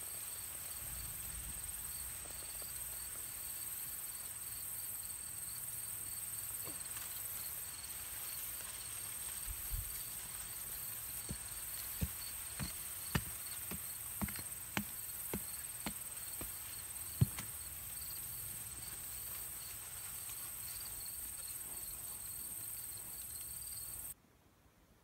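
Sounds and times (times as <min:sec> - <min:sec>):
insects trilling: 0:00.0 - 0:24.2
hatchet chopping into dirt: 0:12.0 - 0:16.6, 0:17.2 - 0:17.6.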